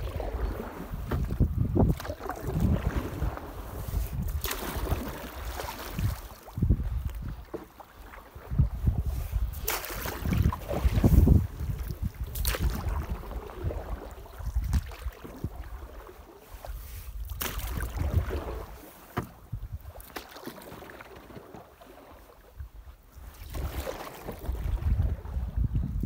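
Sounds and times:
water noise: 0:00.0 - 0:26.0
sharp knocks in a boat: 0:01.0 - 0:02.3, 0:19.1 - 0:20.6.

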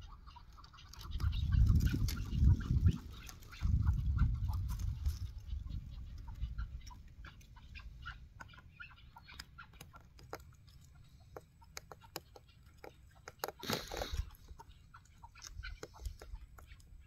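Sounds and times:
partridges clucking: 0:05.3 - 0:17.0.

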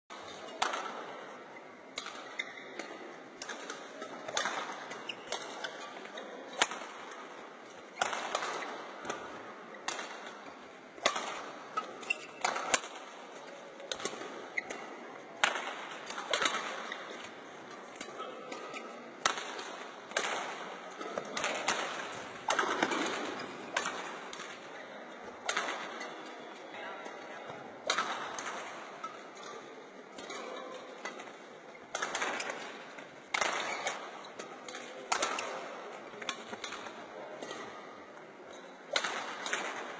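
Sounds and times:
rackets striking shuttlecock: 0:00.2 - 0:01.3, 0:01.9 - 0:26.4, 0:27.8 - 0:39.9.

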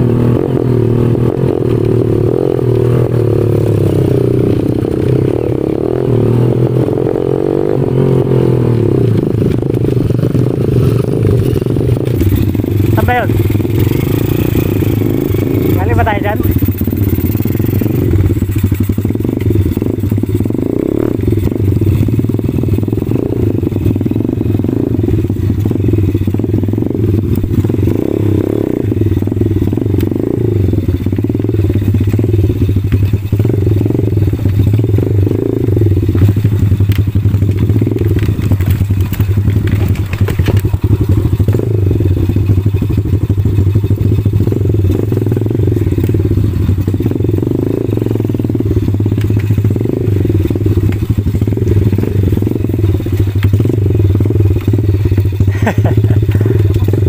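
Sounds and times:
small motorcycle engine running: 0:00.0 - 0:57.0.

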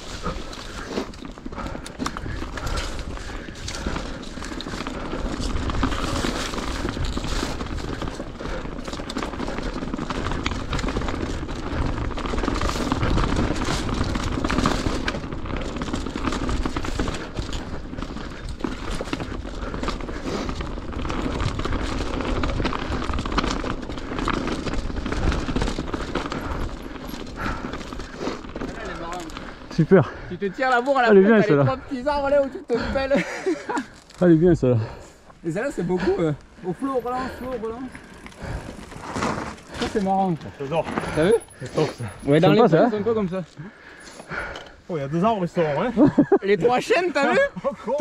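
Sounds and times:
bike chain and frame rattling: 0:00.0 - 0:48.0.

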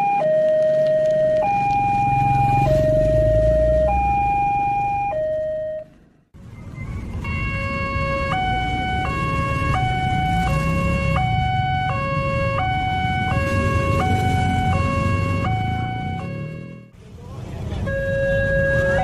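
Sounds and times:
another crossing alarm tone: 0:00.0 - 0:05.9, 0:07.2 - 0:16.9
low road rumble: 0:00.0 - 0:19.0.

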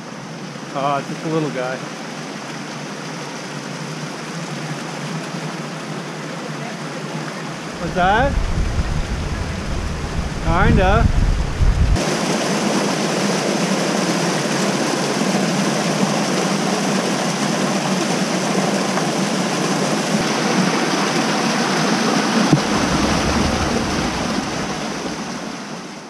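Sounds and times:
waterfall rushing: 0:05.0 - 0:26.0
low bump: 0:07.8 - 0:12.0.

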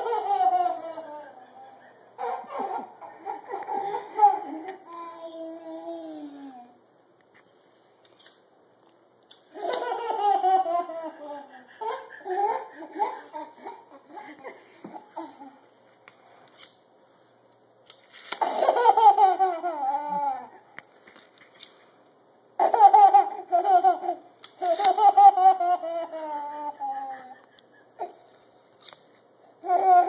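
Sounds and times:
toddler giggling: 0:00.0 - 0:06.0, 0:22.6 - 0:28.3.

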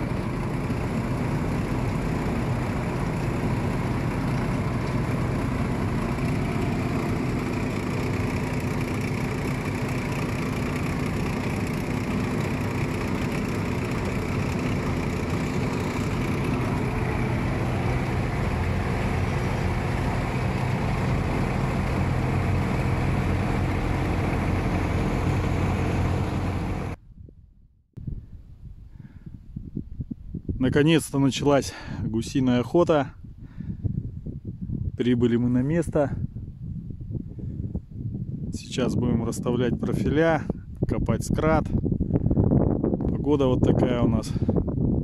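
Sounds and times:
vehicle engine running: 0:00.0 - 0:27.0.

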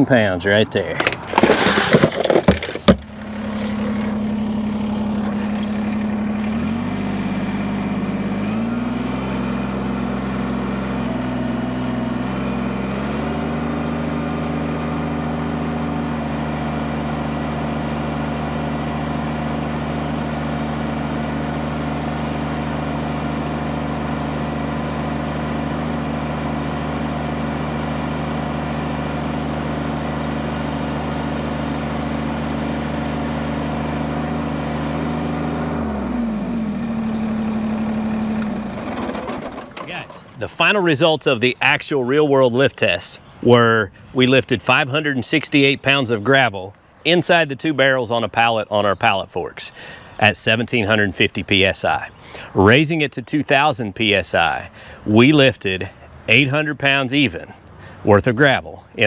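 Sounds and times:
tractor diesel engine running: 0:00.0 - 0:59.0
gravel rattling into plastic barrel: 0:00.9 - 0:03.1.

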